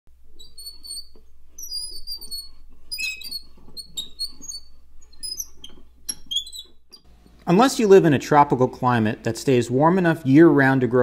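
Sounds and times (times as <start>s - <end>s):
high-pitched chirps and squeaks: 0.3s - 7.1s.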